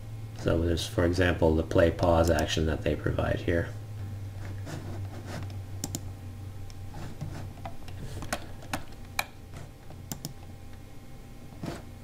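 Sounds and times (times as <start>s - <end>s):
low steady hum: 0.0s - 12.0s
computer mouse and keyboard clicks: 5.3s - 6.0s, 7.2s - 10.4s.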